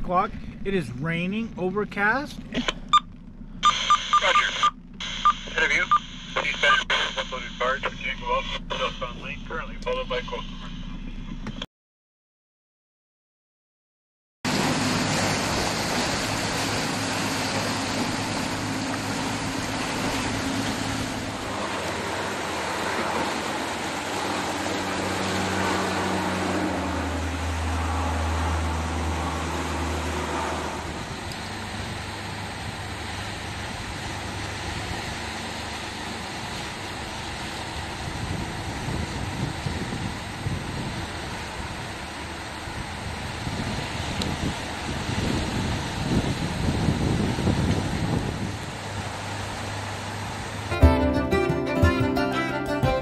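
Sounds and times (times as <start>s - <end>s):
low hum of boat engine: 0.0s - 11.6s, 14.5s - 51.4s
water rushing through rocky channel: 14.5s - 50.7s.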